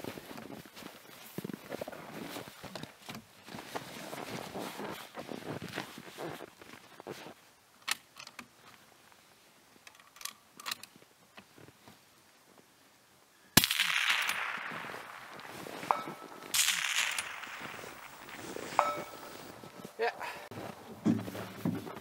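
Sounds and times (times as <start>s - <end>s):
faint rustling: 0.0s - 7.5s, 14.4s - 22.0s
rifle shot echoing: 13.6s - 19.3s.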